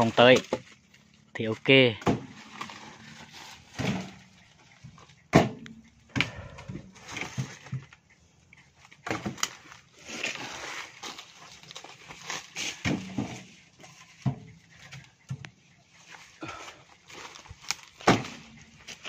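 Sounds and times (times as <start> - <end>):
logs knocking and thudding: 0.0 - 0.8, 1.9 - 8.0, 9.0 - 9.8, 12.6 - 15.4, 16.5 - 19.0.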